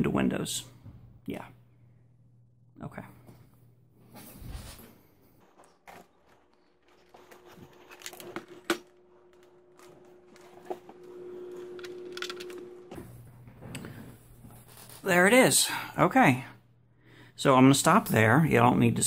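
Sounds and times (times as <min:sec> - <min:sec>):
steady hum: 0:07.0 - 0:19.0.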